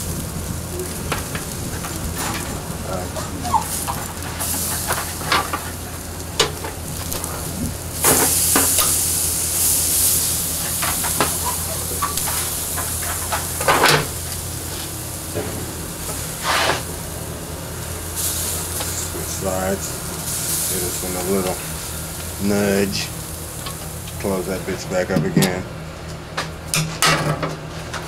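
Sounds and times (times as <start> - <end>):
ribs sizzling on grill: 0.0 - 26.1
grill fork scraping metal grate: 1.1 - 16.9.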